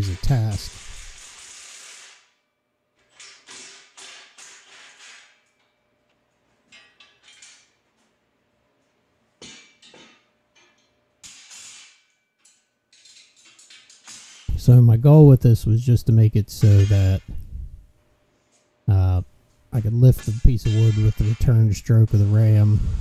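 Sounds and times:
metal parts clanking: 0:06.6 - 0:07.8, 0:09.4 - 0:14.7.

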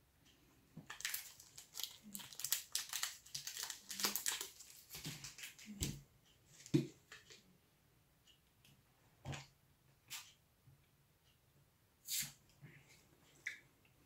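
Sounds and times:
food wrapper crinkling: 0:00.9 - 0:05.7.

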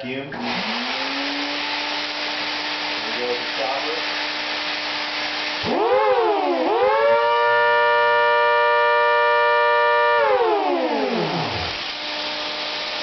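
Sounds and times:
vacuum cleaner air rush: 0:00.4 - 0:08.5, 0:10.2 - 0:13.0
siren winding up to a wail: 0:05.6 - 0:11.9.

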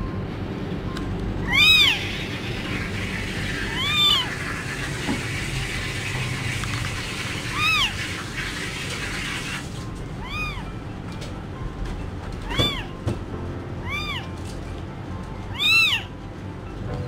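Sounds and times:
kitten mewing: 0:01.4 - 0:02.3, 0:03.7 - 0:04.4, 0:07.5 - 0:08.0, 0:10.2 - 0:10.7, 0:12.4 - 0:13.0, 0:13.8 - 0:14.4, 0:15.5 - 0:16.1.

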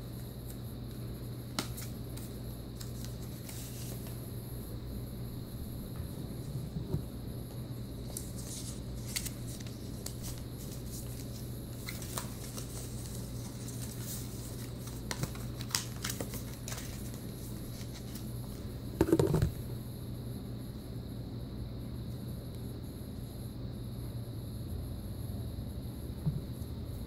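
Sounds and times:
paper rustles and taps: 0:01.5 - 0:04.1, 0:08.1 - 0:18.2, 0:19.0 - 0:19.5.

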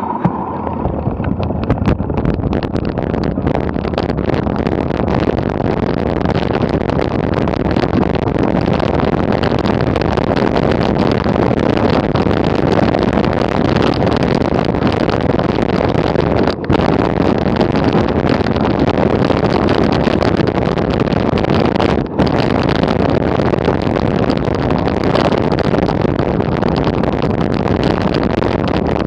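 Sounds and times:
wind on microphone: 0:00.0 - 0:29.0
bike rattling over gravel: 0:00.2 - 0:29.0.

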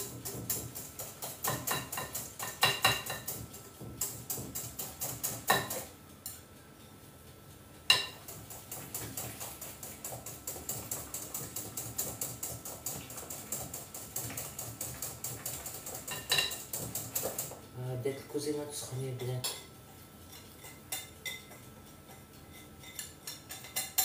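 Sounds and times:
wire whisk clinking in a bowl: 0:01.2 - 0:03.4, 0:20.3 - 0:24.0.

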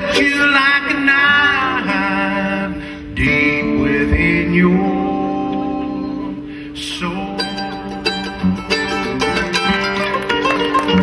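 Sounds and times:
man singing: 0:00.0 - 0:08.3
acoustic guitars: 0:00.0 - 0:11.0
mandolin picked notes: 0:07.2 - 0:11.0.

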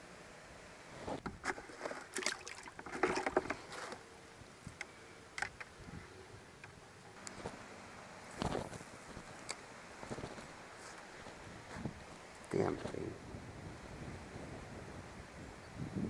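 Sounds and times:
water splashing in a plastic bucket: 0:01.4 - 0:03.6.

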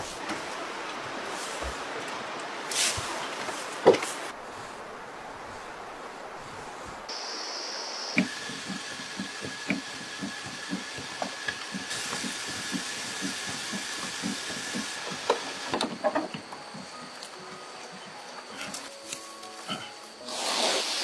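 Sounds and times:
thin steady whine: 0:07.1 - 0:19.2
regular mechanical knock: 0:08.2 - 0:16.4.

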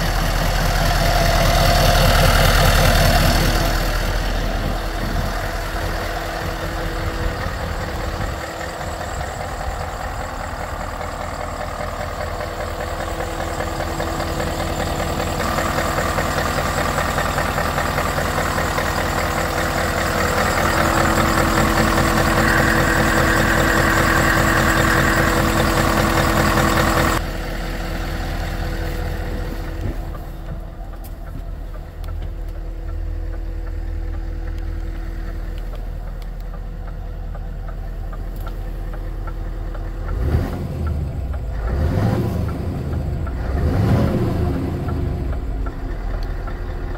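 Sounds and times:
diesel engine idling: 0:00.0 - 0:46.9.

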